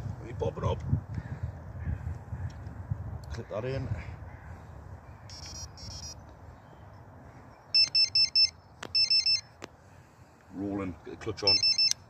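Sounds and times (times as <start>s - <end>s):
bite alarm beeping: 5.3s - 6.2s, 7.7s - 9.6s, 11.4s - 12.0s.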